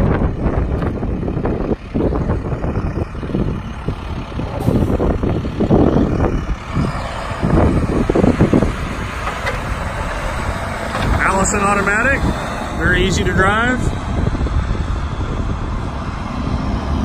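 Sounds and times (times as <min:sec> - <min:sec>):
diesel truck driving by: 0:00.0 - 0:17.0.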